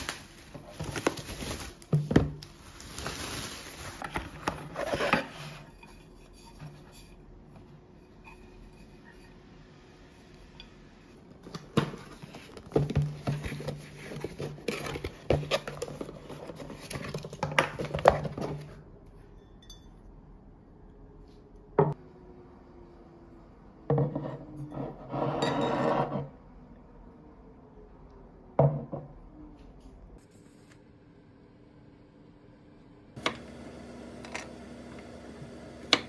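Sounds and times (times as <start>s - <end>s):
tableware clinking and knocking: 23.9s - 26.3s.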